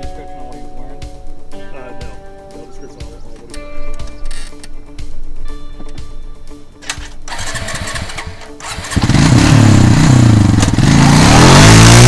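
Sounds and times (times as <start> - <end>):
quad bike engine revving: 6.9 - 12.0.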